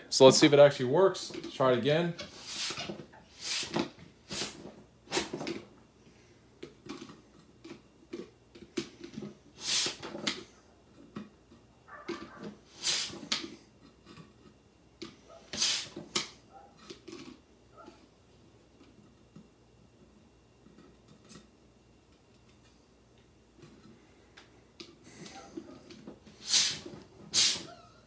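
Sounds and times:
short hissing bursts: 2.3s - 5.3s, 9.6s - 10.0s, 12.7s - 13.3s, 15.5s - 16.0s, 26.4s - 27.7s.

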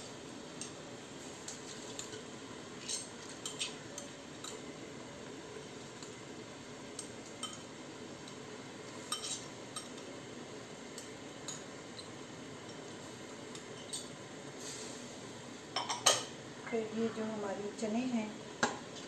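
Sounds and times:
pot bubbling hiss: 0.0s - 19.0s.

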